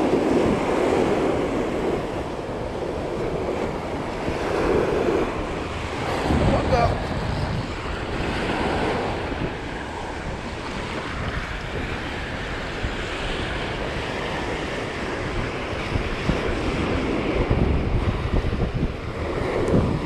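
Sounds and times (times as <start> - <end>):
ocean surf on beach: 0.0 - 20.0
wind buffeting microphone: 0.0 - 20.0.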